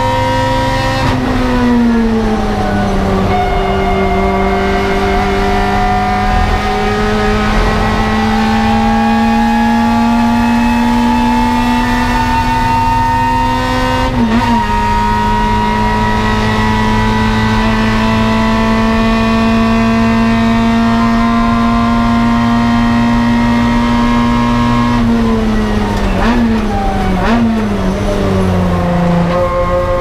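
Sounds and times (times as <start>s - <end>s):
race car engine revving: 0.0s - 30.0s
engine throttle blips: 1.0s - 20.6s.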